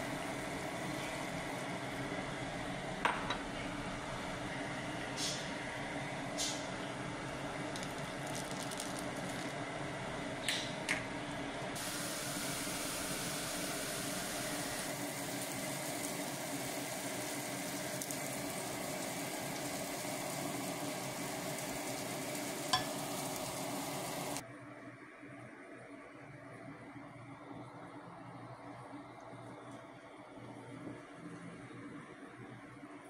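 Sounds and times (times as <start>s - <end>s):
rice sizzling and bubbling: 0.0s - 2.7s, 7.6s - 9.7s, 11.8s - 24.4s.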